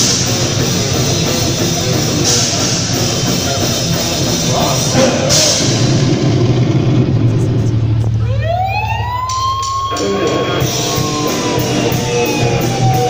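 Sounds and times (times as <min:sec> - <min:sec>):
rock band playing live: 0:00.0 - 0:13.0
electric guitar note sliding upward: 0:04.8 - 0:13.0.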